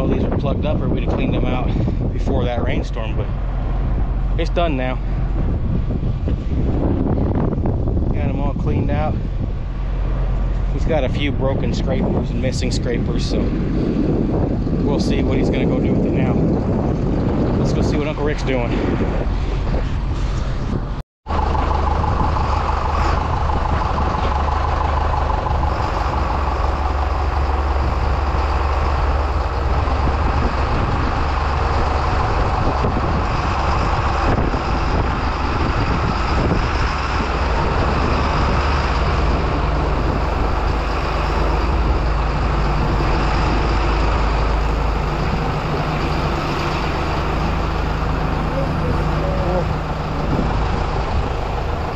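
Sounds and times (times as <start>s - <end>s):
heavy vehicle engine rumbling: 0.0s - 51.9s.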